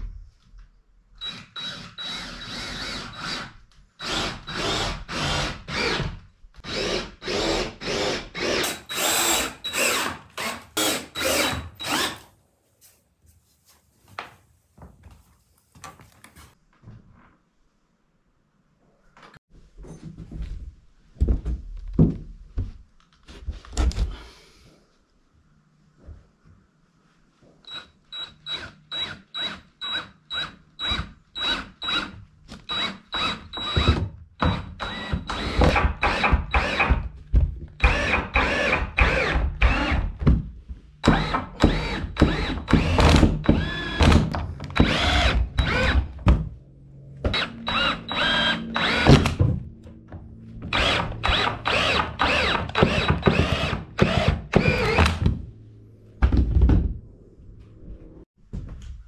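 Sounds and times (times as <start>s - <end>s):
cordless drill boring into wood: 1.2s - 12.2s, 32.7s - 36.9s, 37.8s - 40.0s, 41.0s - 44.2s, 44.8s - 46.0s, 47.3s - 49.2s, 50.7s - 55.1s.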